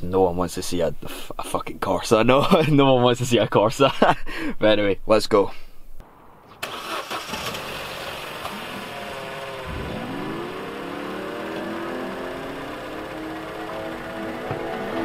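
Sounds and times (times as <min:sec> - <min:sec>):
car engine starting and idling: 0:06.5 - 0:15.0.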